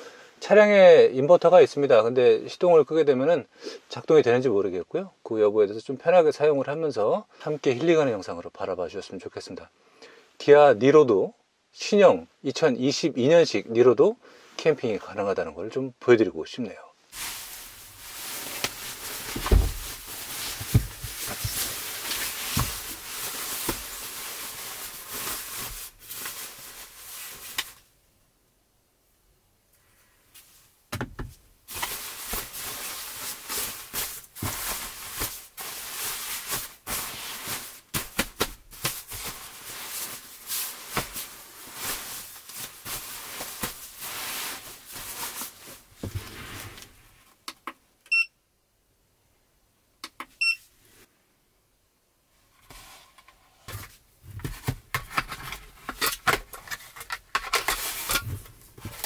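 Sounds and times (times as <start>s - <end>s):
padded jacket rustling: 17.1s - 27.6s, 31.7s - 47.2s
short electronic beeps: 48.1s - 48.3s, 50.4s - 50.6s.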